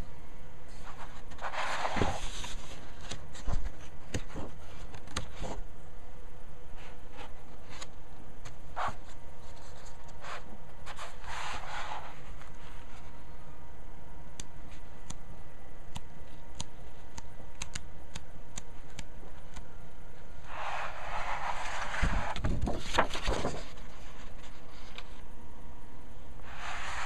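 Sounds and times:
steady low hum: 0:00.0 - 0:27.0
magazine pages rustling: 0:20.5 - 0:25.2.

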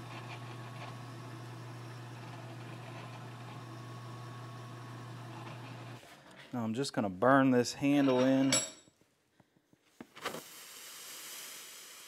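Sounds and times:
drill press motor humming: 0:00.0 - 0:06.0.

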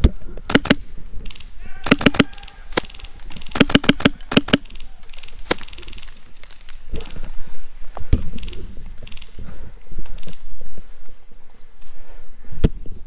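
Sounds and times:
rustling: 0:00.0 - 0:12.6
airsoft rifle shots: 0:00.5 - 0:06.0.

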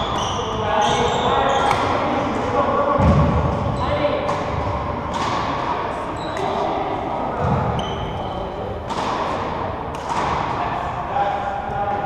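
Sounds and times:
shoe squeaks on wooden floor: 0:00.0 - 0:01.8, 0:06.1 - 0:06.6, 0:07.7 - 0:08.4.

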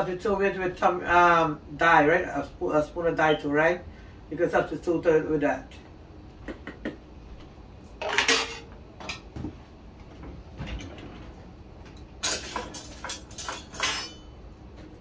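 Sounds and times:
kitchen utensils clattering: 0:08.0 - 0:08.7, 0:12.2 - 0:14.4.

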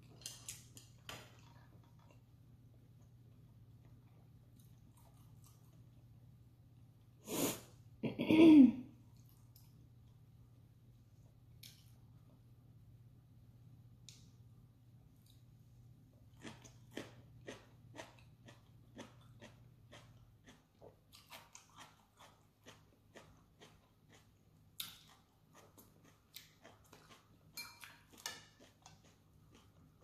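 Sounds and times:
chewing crisp food: 0:00.0 - 0:06.1, 0:15.2 - 0:30.0.

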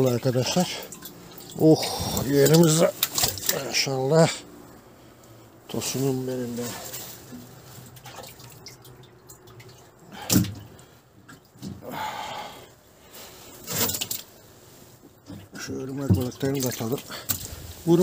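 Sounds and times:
splashy rustle: 0:00.0 - 0:03.9, 0:05.8 - 0:11.6, 0:13.3 - 0:18.0
fish flopping on wet wood: 0:00.9 - 0:03.7, 0:13.6 - 0:14.4, 0:15.2 - 0:17.7.

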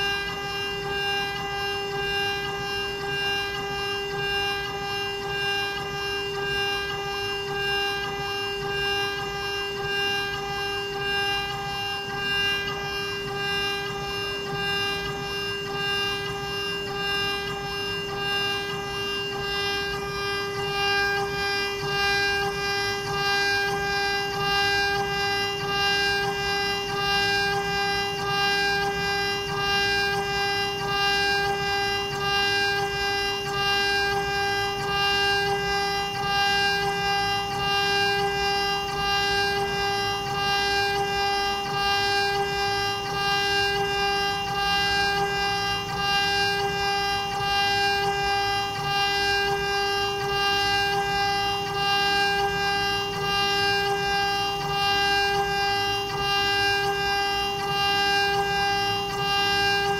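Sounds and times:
router spindle whine: 0:00.0 - 0:59.9.

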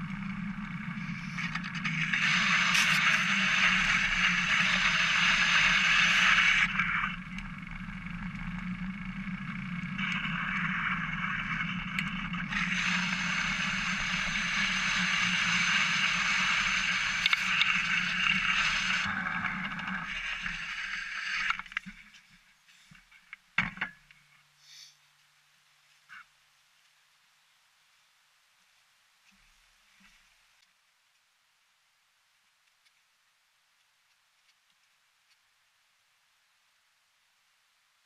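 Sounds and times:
bicycle tyre and drivetrain hiss: 0:00.0 - 0:08.1, 0:08.7 - 0:23.1, 0:24.5 - 0:25.2
low hum: 0:00.0 - 0:24.6.

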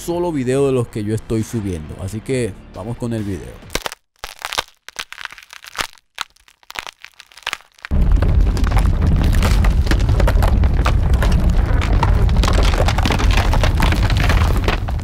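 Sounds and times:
crackling like crumbling stone: 0:03.7 - 0:15.0
sudden deep rumble: 0:07.9 - 0:15.0.

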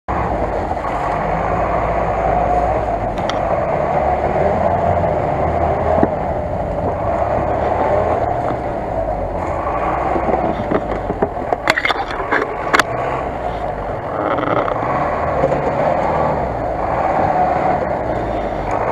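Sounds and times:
truck engine under load: 0:00.1 - 0:18.9.

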